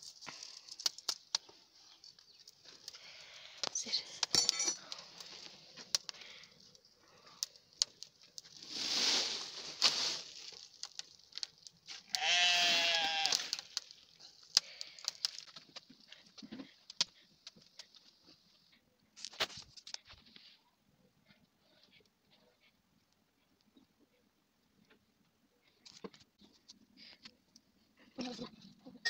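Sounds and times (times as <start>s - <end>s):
twig fire crackling and popping: 0.0s - 20.6s, 25.7s - 28.5s
animal bleating: 12.1s - 13.6s.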